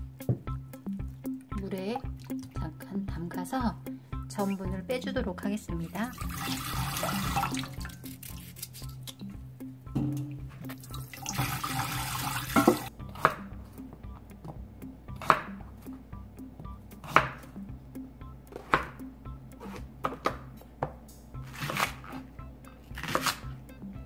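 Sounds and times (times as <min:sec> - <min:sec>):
water splashing in a bowl: 0:06.1 - 0:09.2, 0:10.7 - 0:12.9
knife cutting on plastic board: 0:21.4 - 0:22.3, 0:23.0 - 0:23.5.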